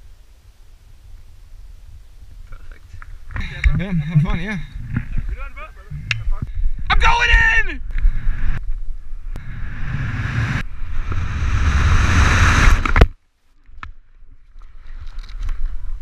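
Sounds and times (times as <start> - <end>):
wind rushing over microphone: 0.9 - 13.1.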